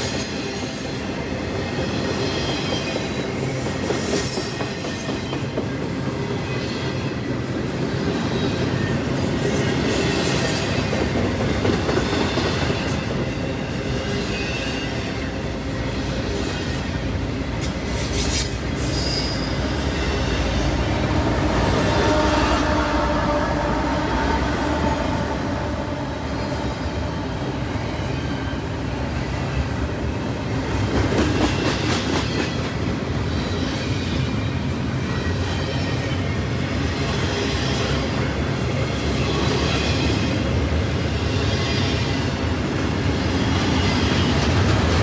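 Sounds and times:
diesel locomotive engine: 0:00.0 - 0:45.0
train cars rumbling: 0:00.0 - 0:45.0
high wheel squeals: 0:18.2 - 0:20.7.

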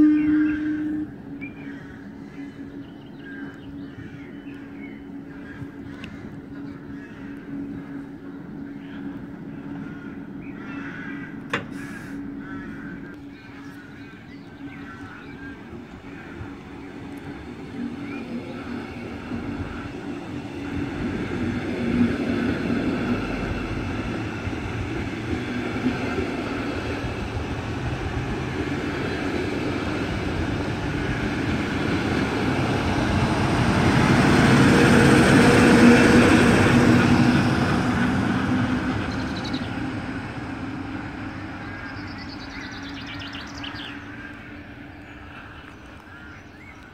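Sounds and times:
steady train hum: 0:00.0 - 0:46.9
wheels rumbling on rails: 0:00.0 - 0:46.9.

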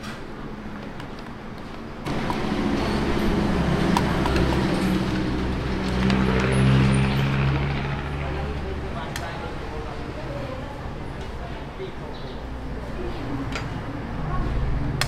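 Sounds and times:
vehicle engine humming: 0:01.1 - 0:11.1.

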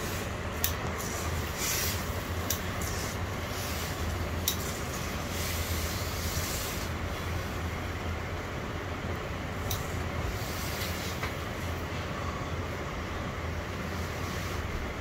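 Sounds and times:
steam hissing: 0:00.0 - 0:07.7
steam iron humming: 0:00.0 - 0:15.0.

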